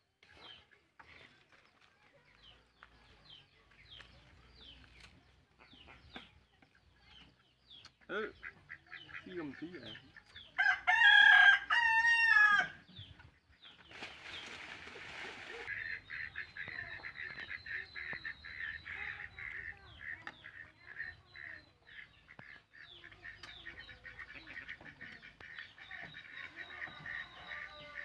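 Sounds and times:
chicken clucking and chirping: 0.1s - 28.0s
rooster crowing: 10.6s - 12.8s, 26.7s - 28.0s.

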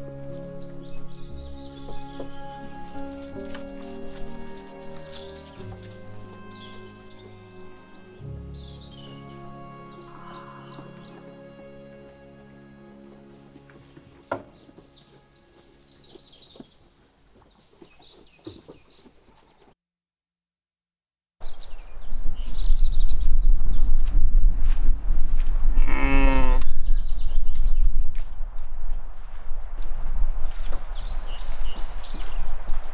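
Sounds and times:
birds chirping: 0.0s - 12.0s, 14.5s - 19.7s, 30.7s - 32.9s
wind rumble on microphone: 21.4s - 32.9s
sheep bleating: 25.8s - 26.7s.

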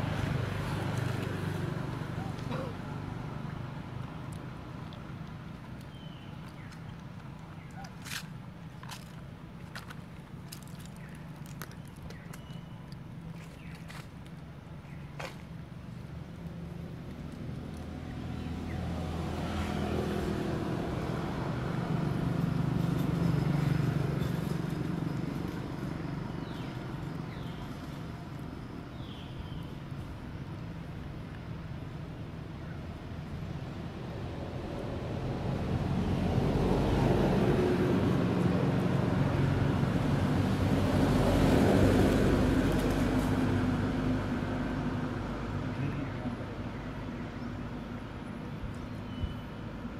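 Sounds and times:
vehicle engine passing by: 0.0s - 6.3s, 16.0s - 29.7s, 32.5s - 49.2s.

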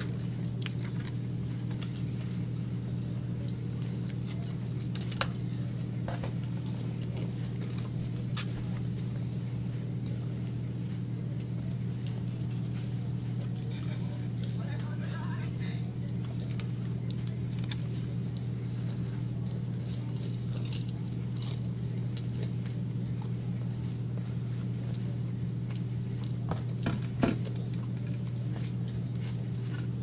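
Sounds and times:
clicks and rustles of handling: 0.0s - 9.3s
faint chewing: 0.0s - 14.9s, 15.9s - 30.0s.

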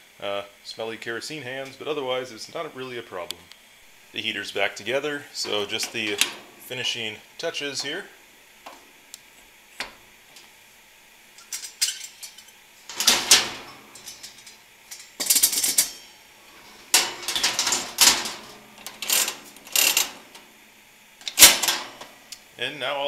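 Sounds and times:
metal wire guard rattling: 11.5s - 16.0s, 16.9s - 20.2s.

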